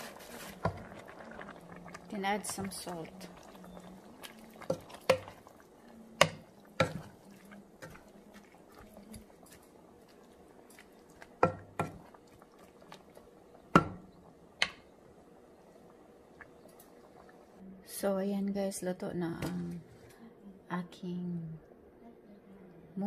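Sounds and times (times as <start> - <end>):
soup sloshing: 0.0 - 17.6
wooden spoon clacking on metal pot: 4.6 - 5.5, 6.2 - 8.1, 11.2 - 12.2, 13.6 - 14.8.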